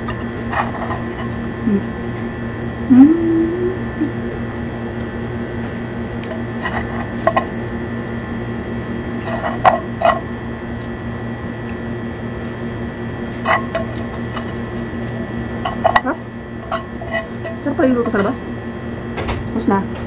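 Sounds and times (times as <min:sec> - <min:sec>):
steady hum: 0:00.0 - 0:20.0
fork scraping frying pan: 0:16.6 - 0:17.6.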